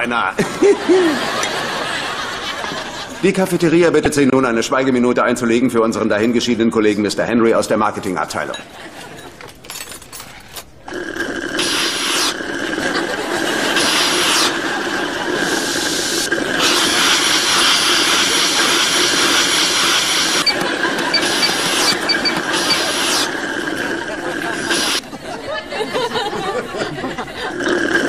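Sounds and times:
coffee machine hissing whine: 10.8 - 25.0.

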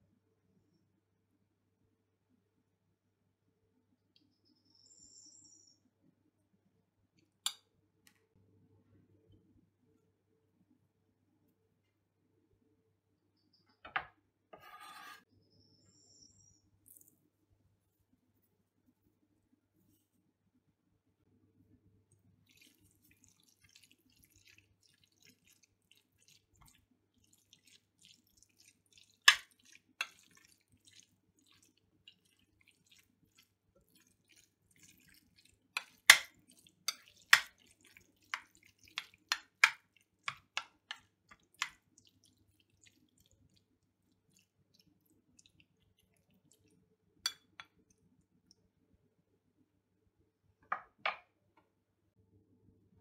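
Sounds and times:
wet rustling of vegetables: 22.4 - 48.0.

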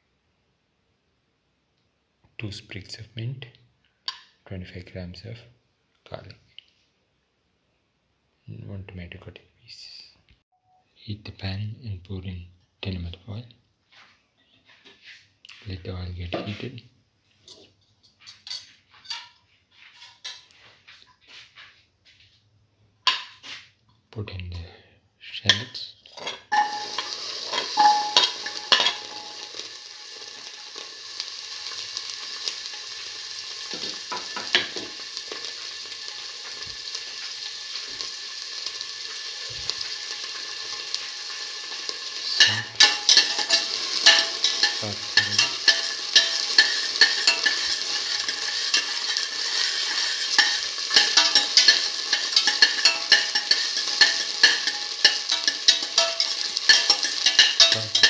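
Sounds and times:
utensil stirring and scraping pan: 25.5 - 58.0
shallots sizzling in hot oil: 26.2 - 58.0.

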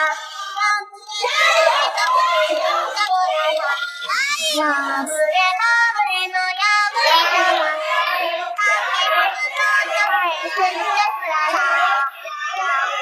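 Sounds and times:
high child-like voice singing: 0.0 - 13.0.

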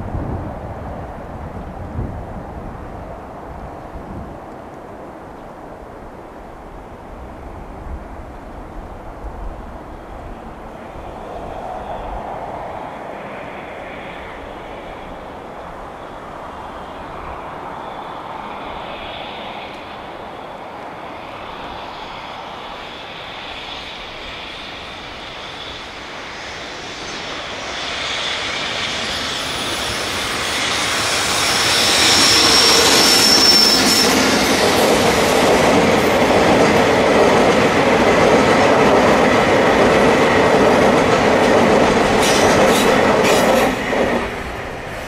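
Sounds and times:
high wheel squeal: 16.6 - 36.2, 42.1 - 45.0
freight train wheels clattering: 25.9 - 45.0.

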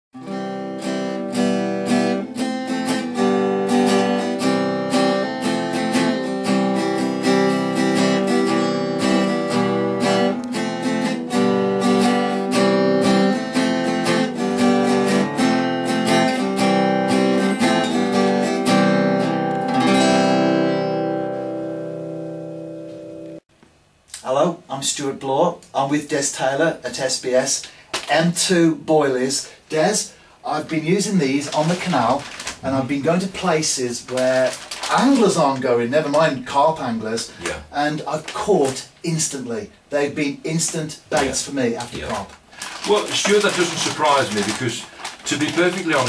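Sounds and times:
acoustic guitar strumming chords: 0.2 - 23.4.

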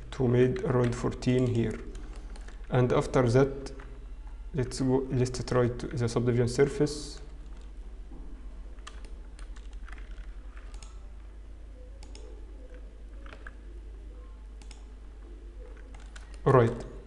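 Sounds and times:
steady low hum: 0.0 - 17.0
mouse clicks: 12.0 - 13.6, 14.6 - 14.9
keyboard keystrokes: 15.7 - 16.9.

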